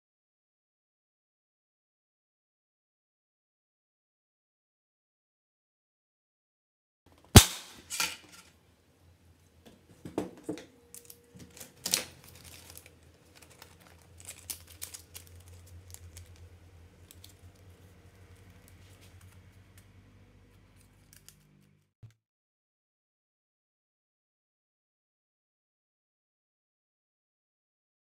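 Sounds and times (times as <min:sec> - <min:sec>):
plastic strips clacking and rattling: 0:07.8 - 0:08.5, 0:10.4 - 0:17.7.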